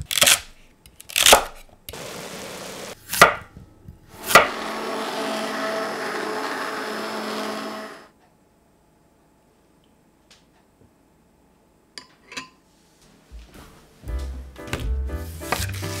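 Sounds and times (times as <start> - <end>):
stick blender running in soup: 2.0 - 3.0, 4.2 - 8.1
knife chopping on wooden board: 3.1 - 3.5, 4.2 - 4.6.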